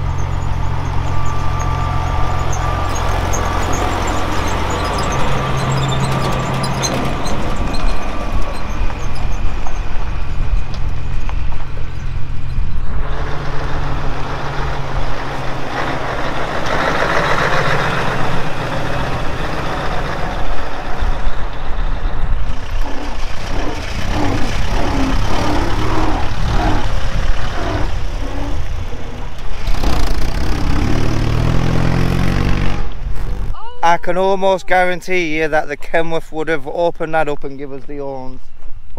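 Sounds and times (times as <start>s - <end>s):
heavy truck engine driving past: 0.0s - 33.5s.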